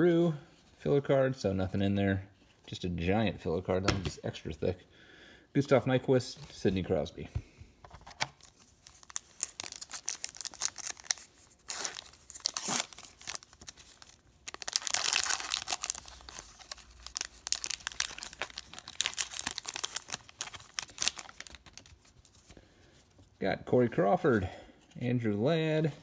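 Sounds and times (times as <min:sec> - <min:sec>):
foil wrapper tearing and crinkling: 0:08.4 - 0:22.1.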